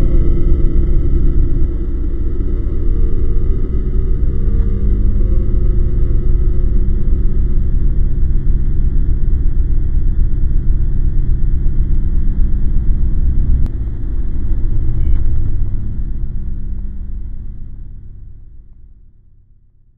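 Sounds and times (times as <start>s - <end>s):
deep steady rumble: 0.0s - 19.9s
faint hum tones: 0.0s - 19.9s.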